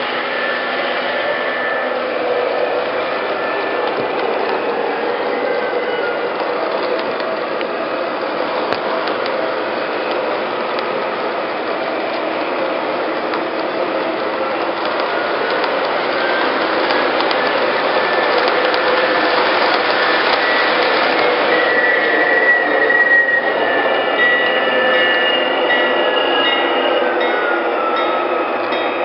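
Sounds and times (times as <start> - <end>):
model train cars clattering on track: 13.0 - 21.6.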